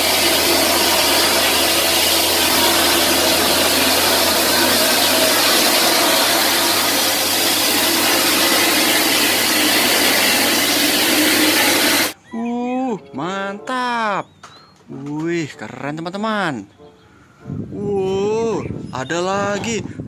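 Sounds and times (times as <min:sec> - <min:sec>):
mixer truck engine and machinery: 0:00.0 - 0:12.2.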